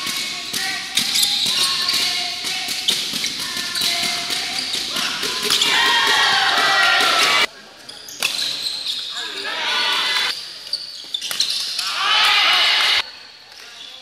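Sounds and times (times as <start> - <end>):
voices in a hall: 0.0 - 14.0
shoes squeaking on floor: 0.9 - 5.8, 7.8 - 11.8.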